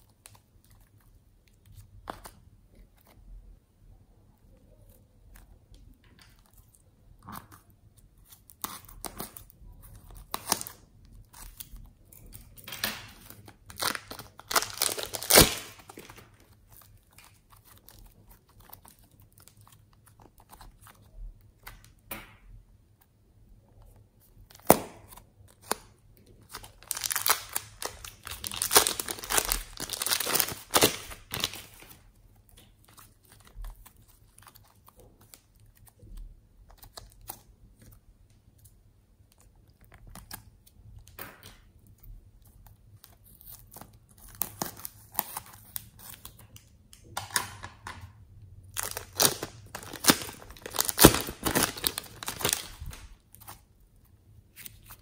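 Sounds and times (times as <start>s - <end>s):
slime squeezed crackling and tearing: 13.2s - 20.9s, 26.4s - 31.9s, 48.7s - 53.6s.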